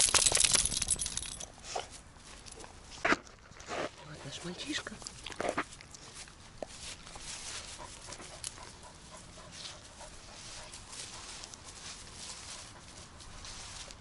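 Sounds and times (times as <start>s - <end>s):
grass and bushes rustling: 0.0s - 14.0s
footsteps in undergrowth: 4.6s - 8.8s, 9.4s - 14.0s.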